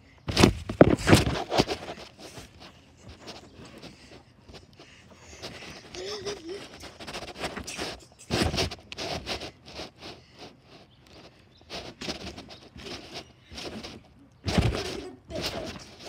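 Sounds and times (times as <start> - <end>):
trampoline mat thumping: 0.3 - 2.0, 14.4 - 15.0.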